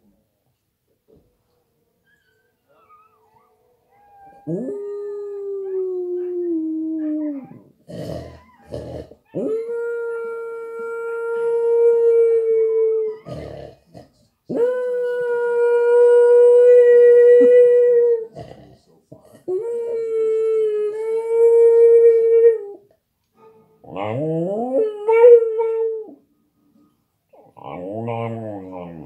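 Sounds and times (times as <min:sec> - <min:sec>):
dogs on television: 0:00.0 - 0:29.0
dog howling: 0:02.8 - 0:13.5, 0:27.6 - 0:29.0.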